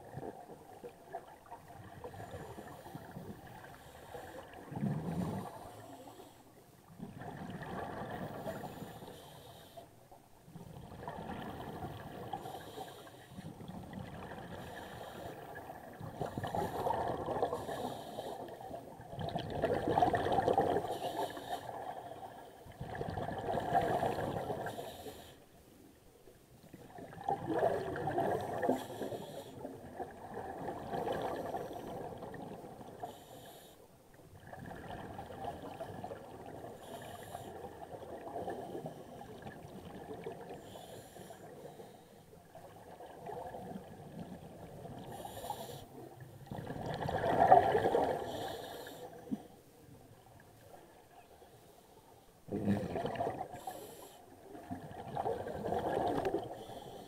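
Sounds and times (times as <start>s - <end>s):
diver exhaling bubbles underwater: 4.6s - 5.6s, 19.1s - 20.9s, 26.8s - 29.0s, 46.5s - 48.4s, 52.5s - 53.7s, 54.6s - 56.6s.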